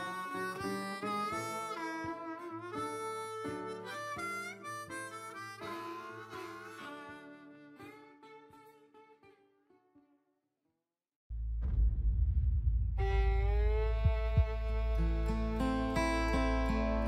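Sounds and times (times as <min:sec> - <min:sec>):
harmonica melody: 0:00.0 - 0:09.9, 0:13.3 - 0:17.0
plucked acoustic guitar: 0:13.0 - 0:17.0.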